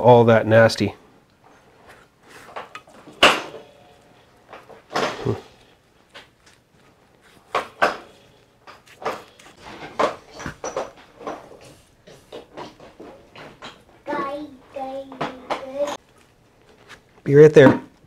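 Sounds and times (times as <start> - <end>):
hard objects knocking: 7.5 - 16.0.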